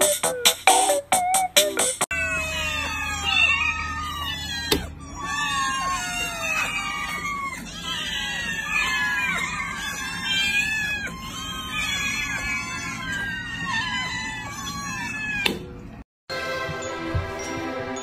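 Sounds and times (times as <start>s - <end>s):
kittens meowing: 2.1s - 15.9s.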